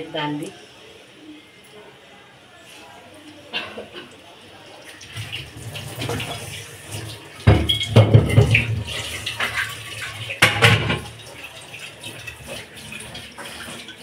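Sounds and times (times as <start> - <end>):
chicken frying in hot oil: 4.0 - 14.0.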